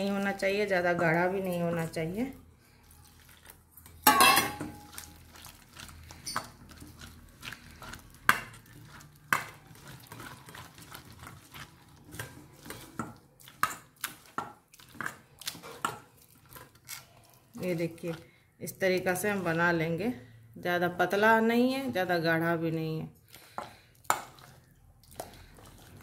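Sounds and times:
hand mixing thick batter: 0:00.0 - 0:04.1, 0:04.7 - 0:26.0
metal bowl clank on counter: 0:04.0 - 0:04.8.

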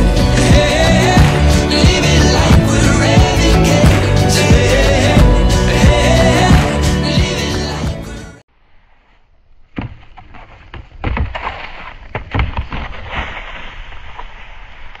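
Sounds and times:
skis sliding over snow: 0:12.7 - 0:15.0.

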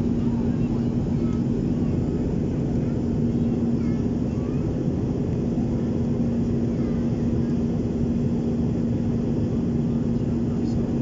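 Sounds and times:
jet engines and airflow rushing: 0:00.0 - 0:11.0
steady low hum: 0:00.0 - 0:11.0.

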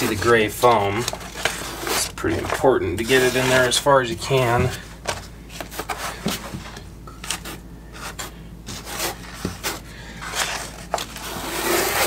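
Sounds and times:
trowel scraping mortar: 0:08.0 - 0:12.0.

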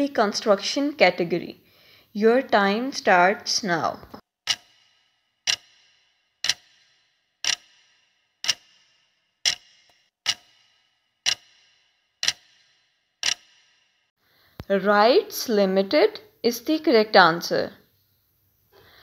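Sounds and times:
countdown timer clock ticks: 0:04.4 - 0:13.9.

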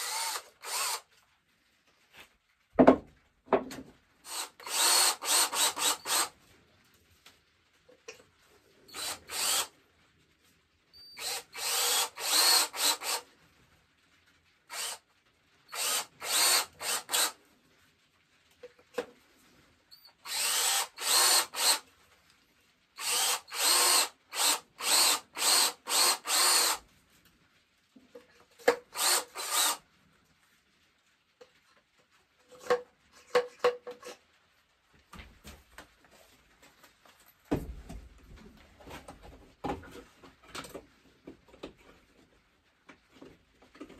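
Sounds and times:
cordless drill boring: 0:00.0 - 0:01.1, 0:04.3 - 0:06.3, 0:08.9 - 0:09.7, 0:11.0 - 0:13.2, 0:14.7 - 0:15.0, 0:15.7 - 0:17.4, 0:20.1 - 0:21.8, 0:23.0 - 0:26.8, 0:28.6 - 0:29.8.

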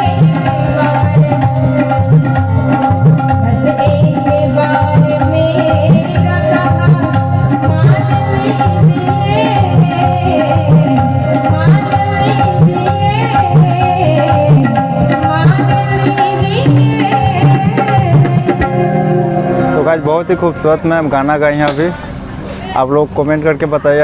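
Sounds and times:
woman singing: 0:00.0 - 0:19.2
sustained keyboard notes: 0:00.0 - 0:23.8
tabla rhythm: 0:00.0 - 0:24.0.

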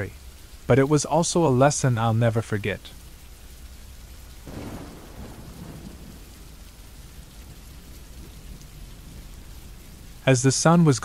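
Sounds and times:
steady rain: 0:00.0 - 0:11.0
low thunder rumble: 0:04.4 - 0:11.0.

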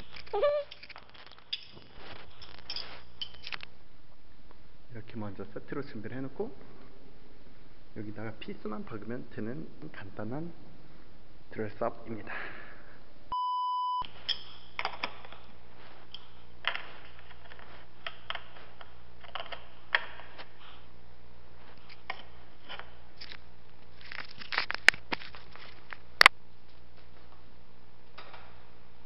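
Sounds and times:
metal parts clicking and tapping: 0:00.0 - 0:03.6
short electronic beep: 0:13.3 - 0:14.1.

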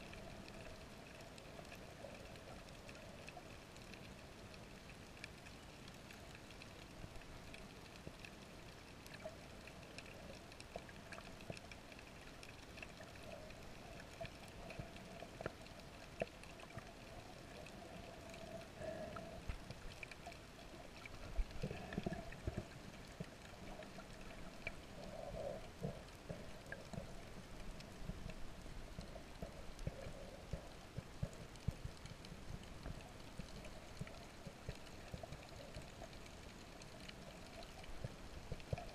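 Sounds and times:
underwater hiss and hum: 0:00.0 - 0:38.9
water gurgling: 0:00.0 - 0:38.9.

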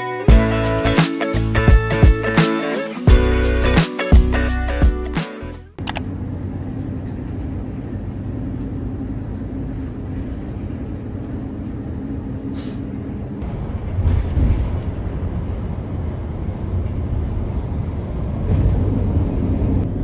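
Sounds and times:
bus engine and road rumble: 0:05.7 - 0:20.0
brief air hiss: 0:12.5 - 0:12.9.

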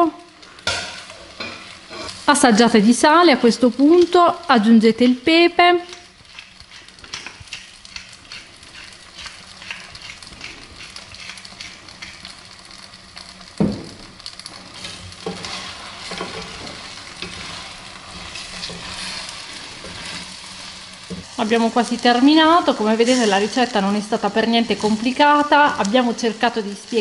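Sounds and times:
pasta sizzling in a pan: 0:00.0 - 0:27.0
pepper mill grinding: 0:06.3 - 0:12.4
wooden spatula stirring pasta: 0:14.4 - 0:21.4.

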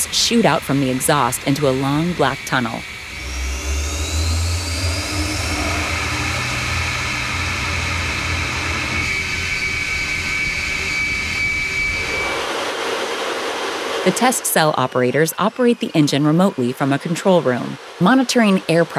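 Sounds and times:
jet engine with afterburner roaring: 0:00.0 - 0:18.9.

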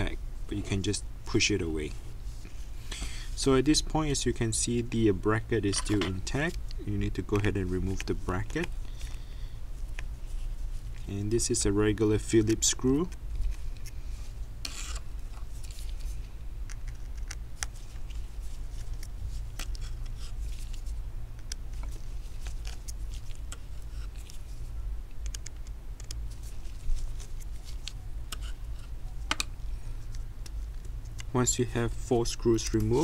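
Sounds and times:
steady low hum: 0:00.0 - 0:33.0
screwdriver clicking and scratching: 0:16.6 - 0:17.7, 0:25.2 - 0:26.2.

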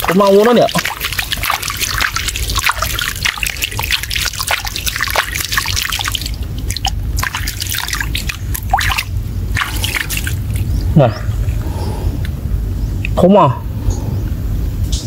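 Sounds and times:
water splashing and dripping: 0:00.0 - 0:11.5.

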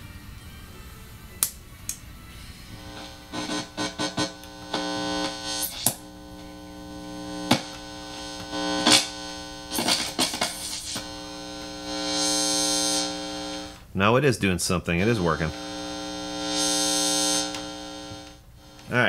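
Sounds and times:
guitar amplifier humming and buzzing: 0:00.0 - 0:19.0
cables and jacks popping: 0:09.7 - 0:11.1.

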